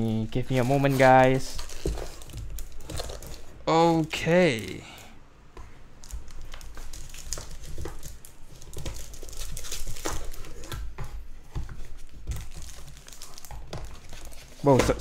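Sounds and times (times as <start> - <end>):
plastic sleeves crinkling: 0.0 - 3.6, 6.0 - 11.0, 11.6 - 15.0.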